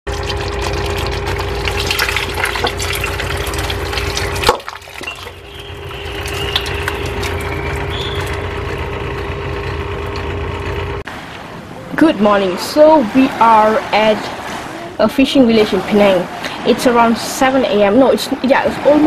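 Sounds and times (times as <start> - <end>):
sauce sloshing: 0.1 - 8.7.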